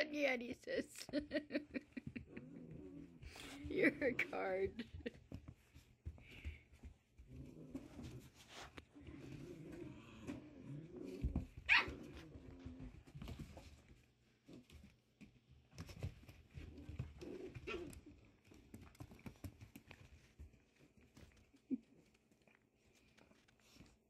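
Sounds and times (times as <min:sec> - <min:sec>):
scuffling paws and bodies: 0:01.1 - 0:24.0
puppies growling: 0:01.8 - 0:05.2, 0:06.3 - 0:13.8, 0:16.2 - 0:19.6
puppy yipping: 0:11.7 - 0:12.2.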